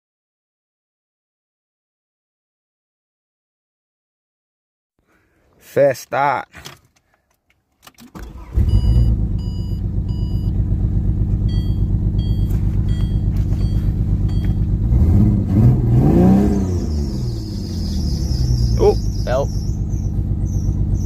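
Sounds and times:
car engine starting and idling: 7.7 - 21.0
engine revving: 8.2 - 21.0
dashboard warning chime beeping: 8.4 - 10.6, 11.4 - 14.8.

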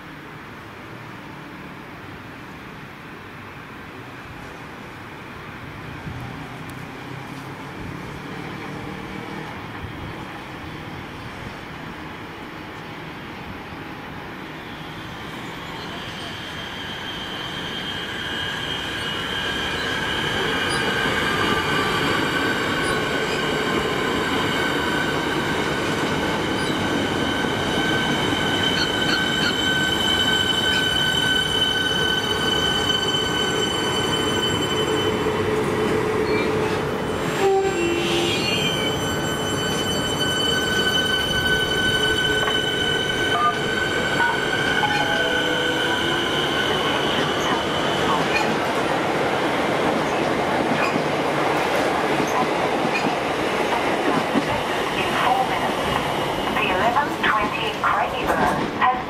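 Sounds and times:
train wheels rumbling on rails: 15.2 - 59.0
electric train high-pitched whine: 15.8 - 48.4.

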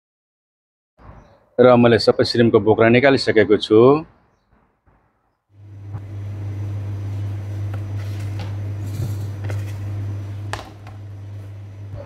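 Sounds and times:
kitchen equipment humming: 5.6 - 12.0.

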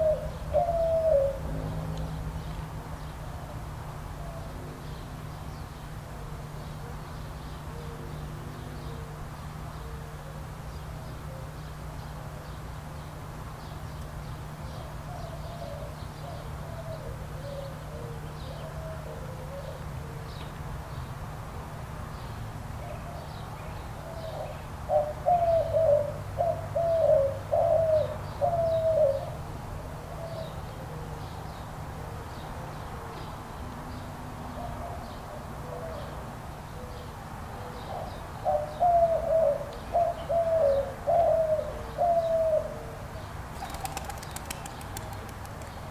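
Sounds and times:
dove cooing: 0.0 - 1.5, 15.0 - 20.2, 24.0 - 29.4, 37.9 - 43.0, 43.6 - 45.9
small birds chirping: 43.2 - 45.9.

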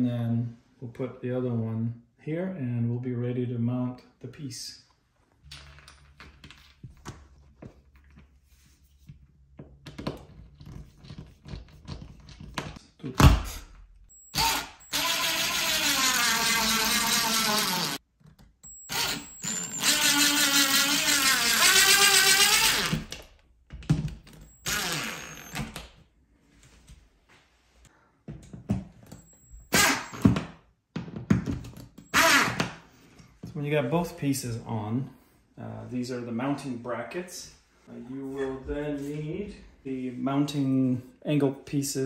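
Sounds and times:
cordless drill driving screw: 14.3 - 18.0, 18.7 - 23.2, 24.3 - 25.8, 29.2 - 30.4, 32.1 - 32.7.

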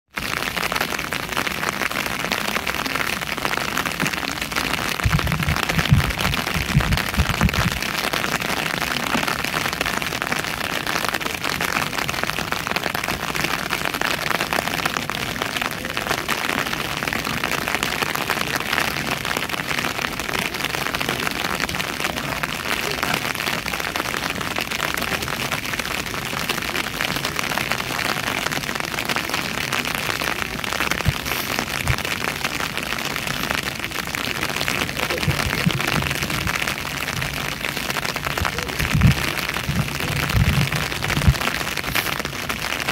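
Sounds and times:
rain pattering on an umbrella: 0.1 - 42.9
low rumbling thumps: 5.0 - 7.9, 38.4 - 41.5.

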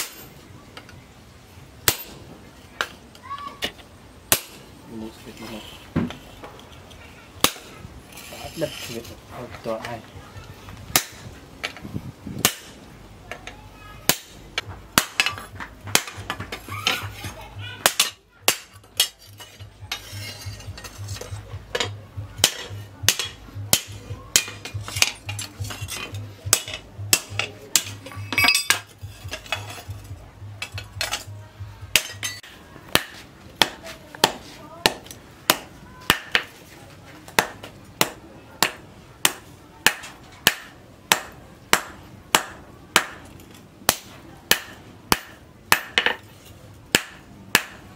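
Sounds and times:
hammer striking steel on anvil: 17.8 - 31.3, 31.9 - 36.5, 37.4 - 43.3, 43.9 - 46.2, 46.9 - 47.8.

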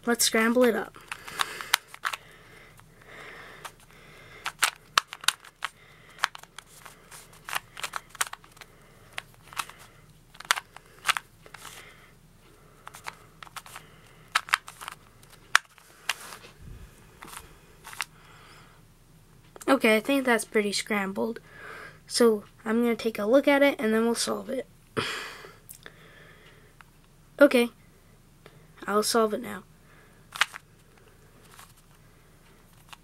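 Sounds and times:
puzzle cube layers clicking: 4.4 - 8.6.

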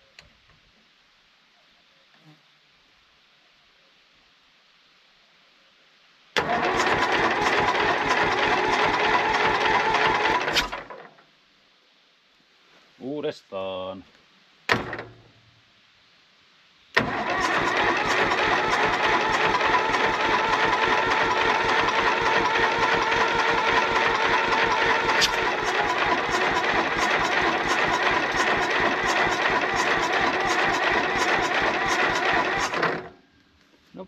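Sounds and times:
tractor engine cranking: 6.4 - 11.1, 17.0 - 33.2.

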